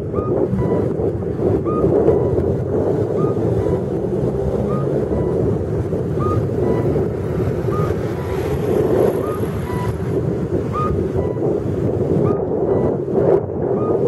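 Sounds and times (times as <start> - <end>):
electronic two-note cuckoo call: 0.0 - 0.9, 1.6 - 2.5, 4.6 - 5.5, 6.2 - 7.0, 10.7 - 11.5
wind on microphone: 0.0 - 14.0.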